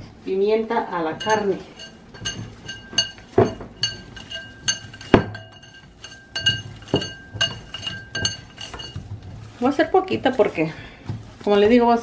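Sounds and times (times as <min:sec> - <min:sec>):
glass bowl clinking: 0:01.1 - 0:10.0.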